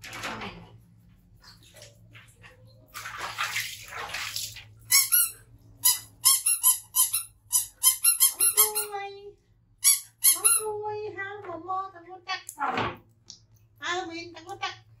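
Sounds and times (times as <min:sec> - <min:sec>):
water splashing: 0:01.5 - 0:05.0
rubber squeaky toys squeaking: 0:04.9 - 0:08.9, 0:09.8 - 0:10.6.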